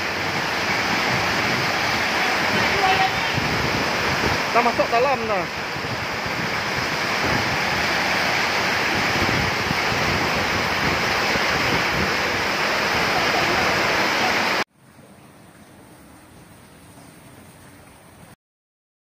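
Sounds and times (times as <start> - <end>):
loud rushing water: 0.0 - 18.4.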